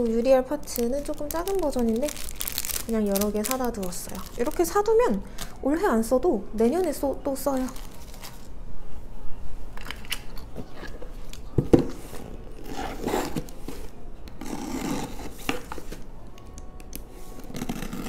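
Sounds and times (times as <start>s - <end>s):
box cutter scraping through tape: 14.4s - 15.6s.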